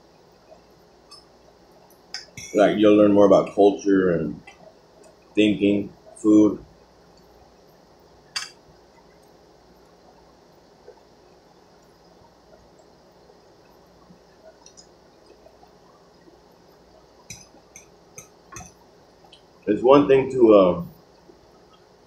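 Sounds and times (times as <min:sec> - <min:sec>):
faint chewing clicks: 0:13.6 - 0:19.5.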